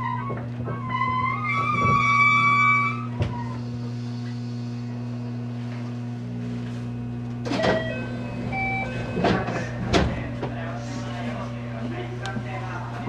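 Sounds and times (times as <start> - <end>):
electric train humming: 0.0 - 13.0.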